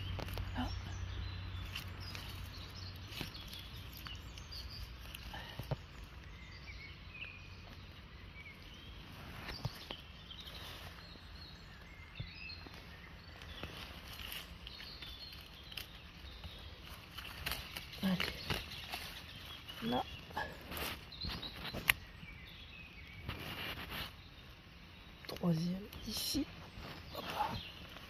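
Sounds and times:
faint bird chirps: 0.0s - 28.0s
knife clicking in wet leaves: 1.6s - 5.3s, 13.4s - 19.8s.

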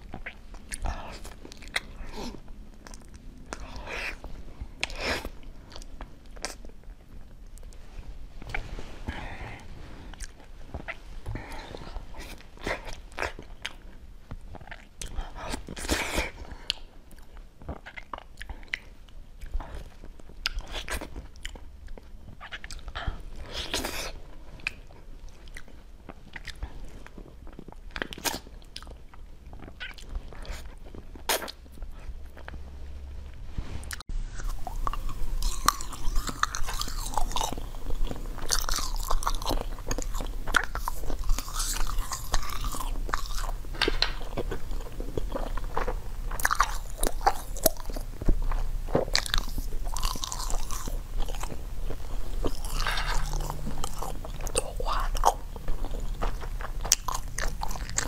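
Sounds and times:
wet chewing and mouth clicks: 0.0s - 7.8s, 10.2s - 32.6s, 33.9s - 58.0s
crisp crunching and chewing: 11.6s - 32.6s, 33.9s - 58.0s.

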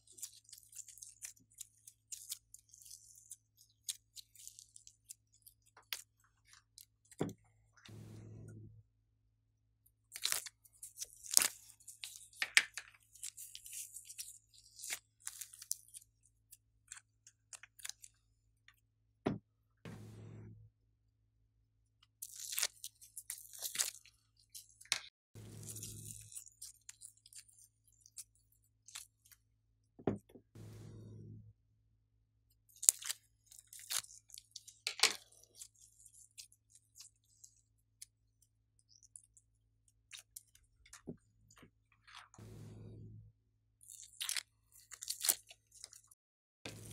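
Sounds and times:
thump: 19.3s - 20.6s
slime crackling and ticking: 32.7s - 38.2s.

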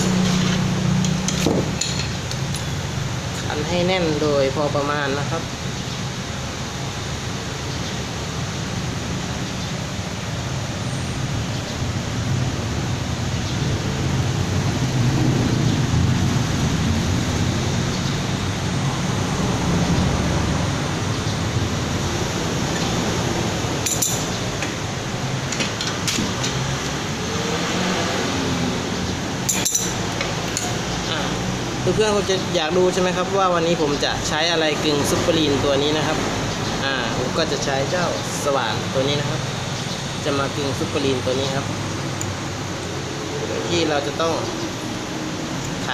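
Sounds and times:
spanner clinking on metal: 0.0s - 2.8s, 23.8s - 27.0s, 29.4s - 31.0s
rushing background noise: 0.0s - 45.9s.

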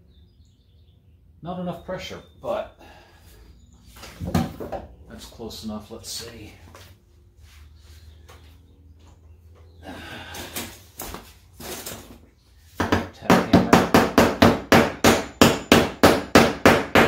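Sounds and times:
hammer striking wood: 12.8s - 17.0s.

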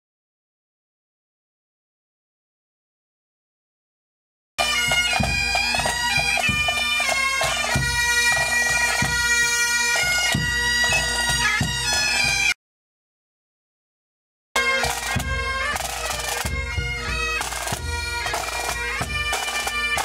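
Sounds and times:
bagpipes playing: 4.6s - 12.6s, 14.6s - 20.0s.

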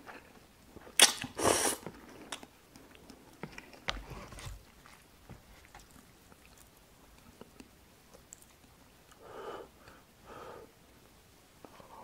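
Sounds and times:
person chewing noodles: 0.8s - 9.2s.

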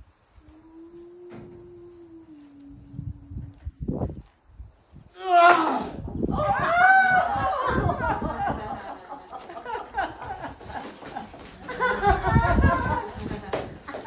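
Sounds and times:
person whooping: 5.2s - 8.2s
person crying out and laughing: 5.2s - 8.6s.

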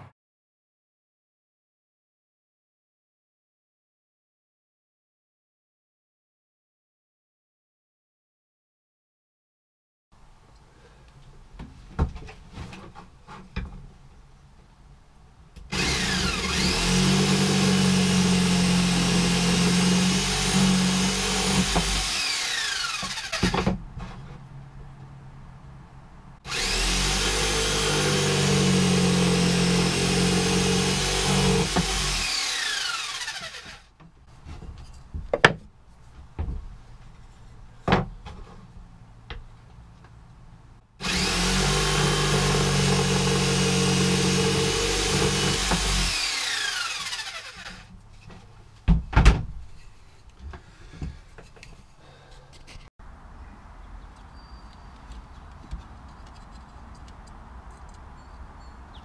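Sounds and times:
knocks of wood and tool: 11.6s - 13.9s, 23.0s - 24.4s, 33.6s - 38.7s, 47.5s - 49.8s
power saw cutting wood: 15.7s - 23.7s, 26.4s - 33.9s, 41.0s - 47.9s.

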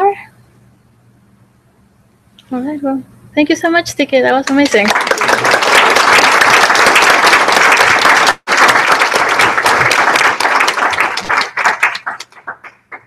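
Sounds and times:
audience applauding: 4.4s - 13.0s.

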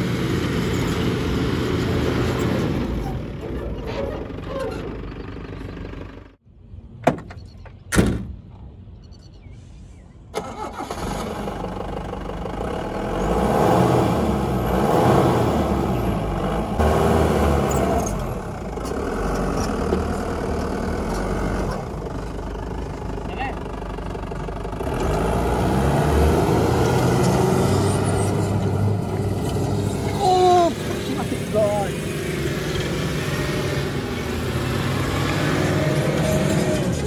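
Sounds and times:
car engine revving: 10.5s - 22.1s, 24.6s - 37.0s.

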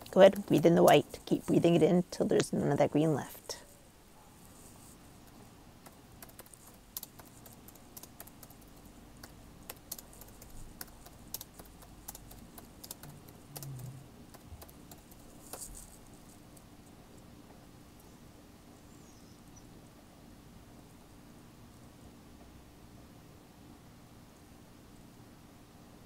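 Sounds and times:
typing on keyboard: 5.8s - 15.7s.

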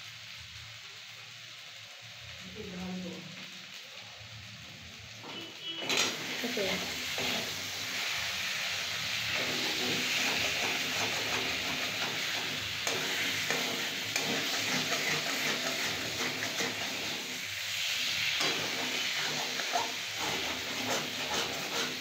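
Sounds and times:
potatoes sizzling in oil: 0.0s - 22.0s
metal spatula scraping pan: 5.2s - 7.8s, 9.2s - 22.0s.

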